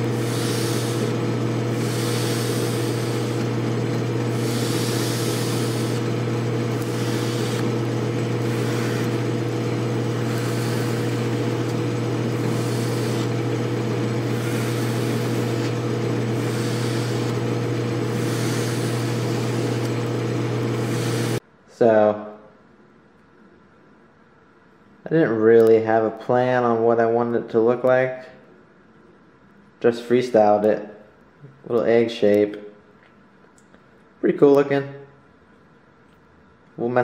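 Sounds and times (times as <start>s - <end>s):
lathe humming: 0.0s - 21.4s.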